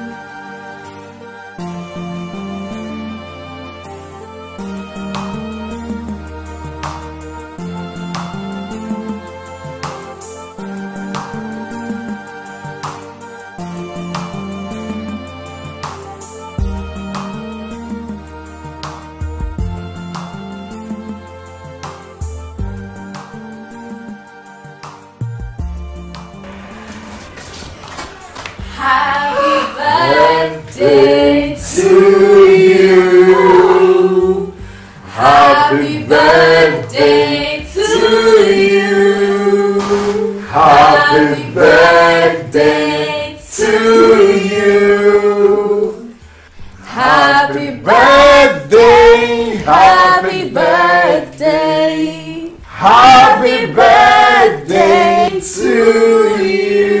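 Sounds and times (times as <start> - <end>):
group of voices singing: 28.6 - 46.2, 46.8 - 57.0.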